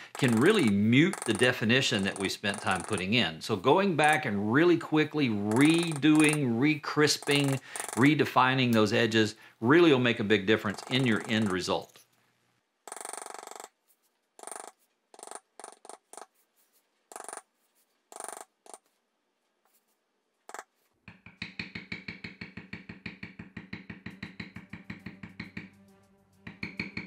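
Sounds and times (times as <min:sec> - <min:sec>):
maul tapping leather tool: 0:00.0 - 0:03.2, 0:05.4 - 0:08.9, 0:10.6 - 0:12.0, 0:14.4 - 0:16.5, 0:20.5 - 0:27.0.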